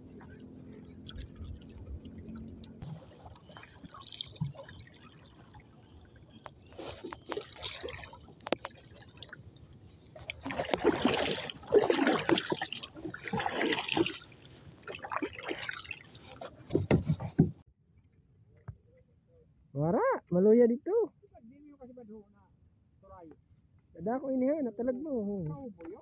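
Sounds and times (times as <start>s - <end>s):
paddle splashing through water: 0.0s - 17.6s.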